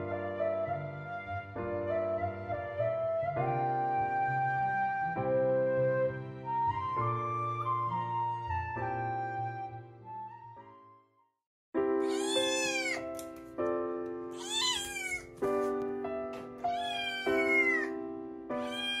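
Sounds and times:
kitten meowing: 12.0s - 13.2s, 14.4s - 15.4s, 16.7s - 18.0s, 18.6s - 19.0s.

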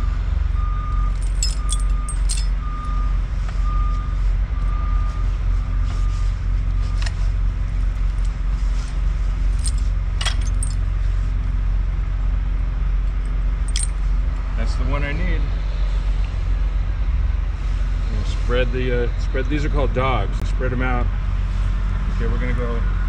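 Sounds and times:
metallic clinks of chain links: 1.1s - 3.0s, 9.5s - 10.8s, 13.6s - 14.0s.

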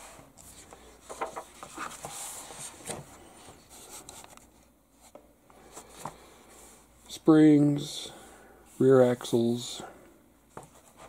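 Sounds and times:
paper pages rustling: 0.4s - 4.5s.

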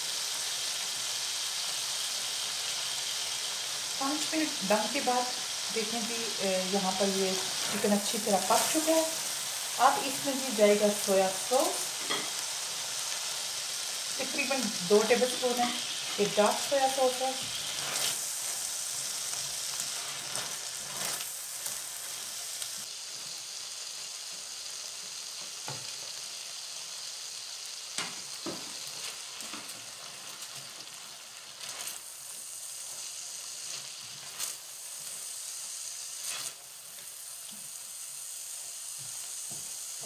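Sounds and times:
food sizzling in a wok: 0.0s - 40.0s
spatula scraping and knocking pan: 12.0s - 12.4s.

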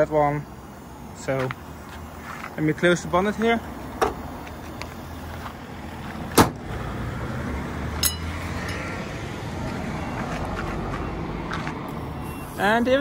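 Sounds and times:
car bonnet slamming shut: 6.3s - 6.6s.

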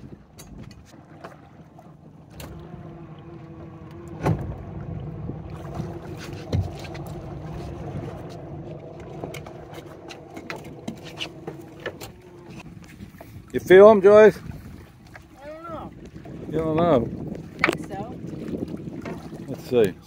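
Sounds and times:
small boat motor humming: 0.0s - 20.0s
dull thud: 4.0s - 4.7s, 6.1s - 7.1s.

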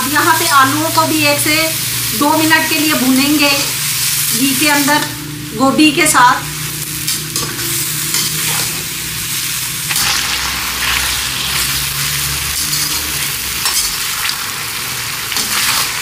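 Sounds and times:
vegetables sizzling in oil: 0.0s - 16.0s
steel spoon scraping pan: 6.8s - 14.4s.

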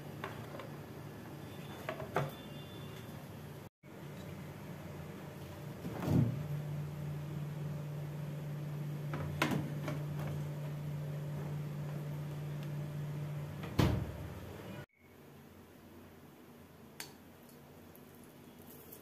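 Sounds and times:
refrigerator humming: 0.0s - 14.8s
refrigerator door opening: 5.8s - 6.5s, 13.6s - 14.3s
refrigerator door thumping shut: 13.6s - 14.2s.

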